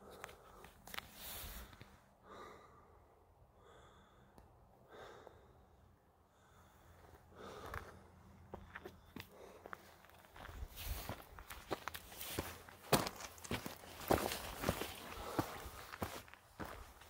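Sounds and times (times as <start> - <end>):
man breathing: 0.0 - 12.6, 13.4 - 17.0
footsteps on loose stones: 7.6 - 17.0.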